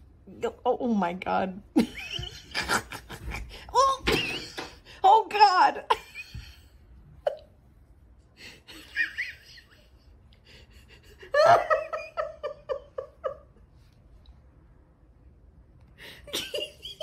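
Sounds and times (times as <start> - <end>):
person laughing: 10.9 - 13.6.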